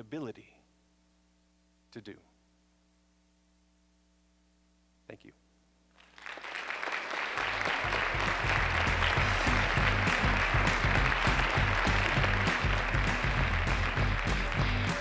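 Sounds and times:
audience applauding: 6.0 - 15.0
music with pulsing bass beat: 8.1 - 15.0.

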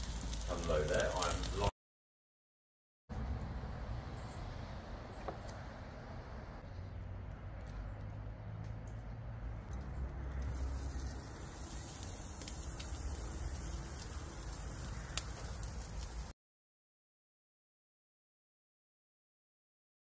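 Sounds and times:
steak sizzling on a grill: 0.0 - 1.7, 10.3 - 16.3.

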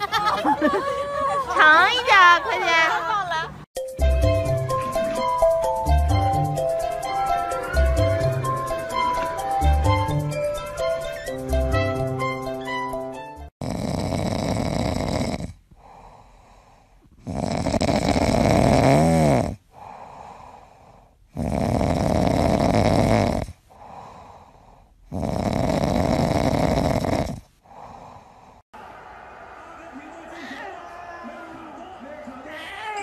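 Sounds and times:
cat snoring: 13.6 - 28.6
cat breathing: 14.1 - 18.5, 19.7 - 28.6.

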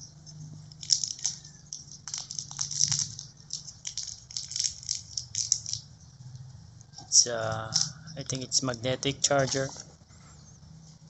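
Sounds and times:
plastic charger clicking and rattling: 0.7 - 5.8.

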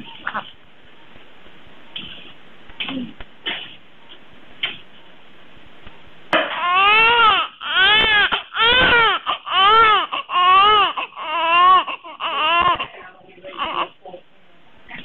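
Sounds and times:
newborn baby crying: 6.4 - 14.0.

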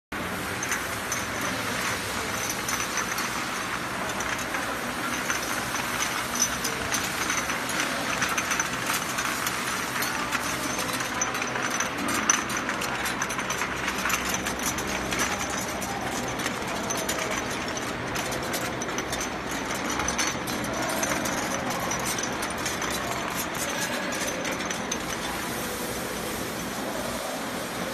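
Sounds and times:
glass bottles clinking: 0.4 - 25.9.

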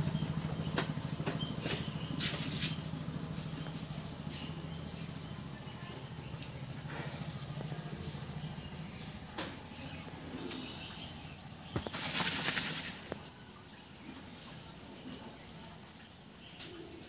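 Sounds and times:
dry grains rustling and pattering: 11.8 - 13.2.

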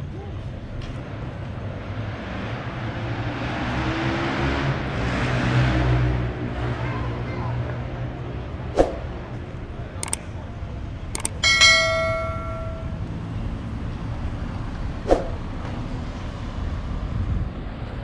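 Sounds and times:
low rumble of street traffic: 0.0 - 18.0
sharp clicks: 10.0 - 10.2, 11.2 - 11.7
metallic ring: 11.2 - 13.1.

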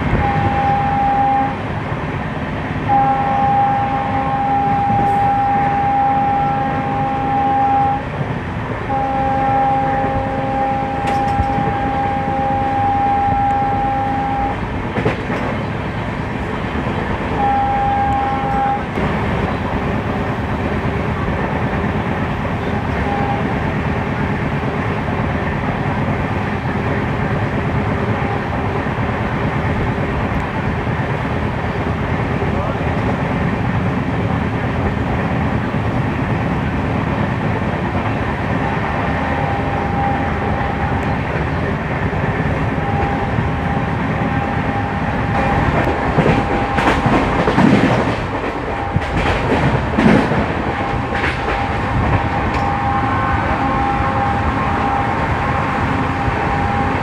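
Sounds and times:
locomotive horn blasts: 0.0 - 1.7, 2.8 - 8.2, 8.8 - 14.7, 17.3 - 19.0, 22.6 - 23.6, 28.0 - 28.7, 38.5 - 57.0
train coaches running on track: 0.0 - 57.0.

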